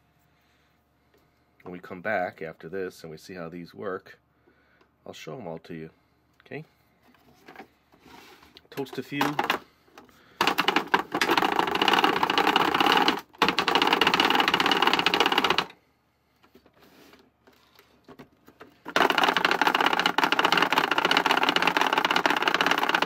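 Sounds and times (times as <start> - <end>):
plastic grinder gears clattering: 8.8 - 9.7, 10.4 - 15.8, 17.5 - 23.0.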